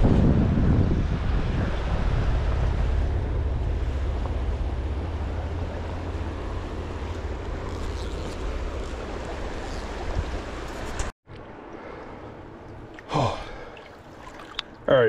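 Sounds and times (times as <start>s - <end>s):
wind on microphone: 0.0s - 11.1s.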